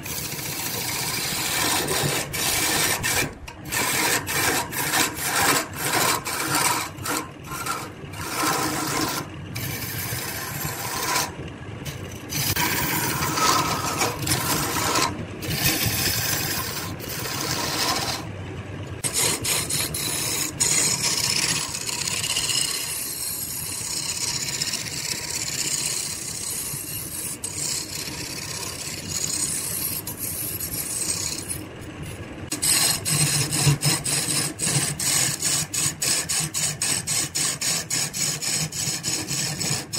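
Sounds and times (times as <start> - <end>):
chisel scraping wood on lathe: 0.0 - 18.3, 19.0 - 39.9.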